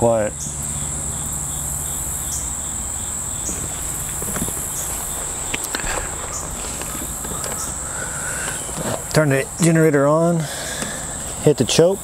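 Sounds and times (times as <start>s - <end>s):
insects droning: 0.0s - 12.0s
footsteps on ground: 3.4s - 9.5s.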